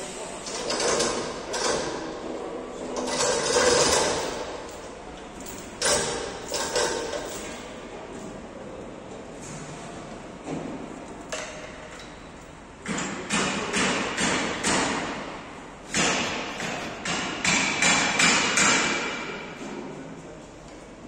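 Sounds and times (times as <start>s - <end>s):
metal clanks and knocks: 5.4s - 7.6s.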